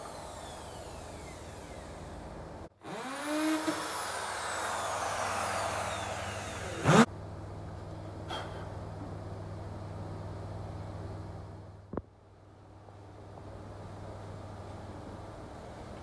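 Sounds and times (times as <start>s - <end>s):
electric drill whining: 0.0s - 7.1s.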